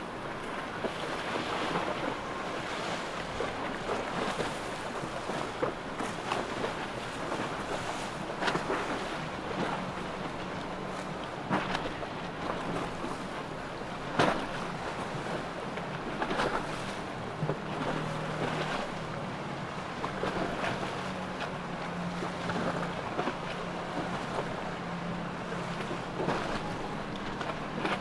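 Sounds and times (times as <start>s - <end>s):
low engine drone: 0.0s - 28.0s
bow slapping through waves: 3.0s - 13.4s, 14.0s - 19.2s, 25.5s - 28.0s.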